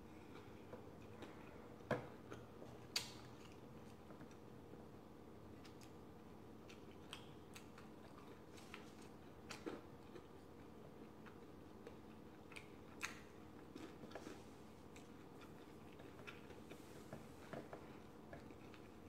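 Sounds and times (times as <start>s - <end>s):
faint steady hum: 0.0s - 19.0s
chewing and food crunches: 6.6s - 19.0s.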